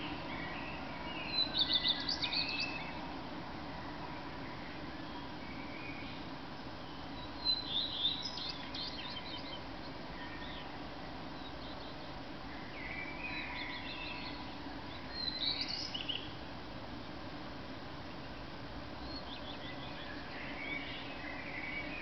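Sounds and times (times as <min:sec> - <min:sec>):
background hiss: 0:00.0 - 0:22.0.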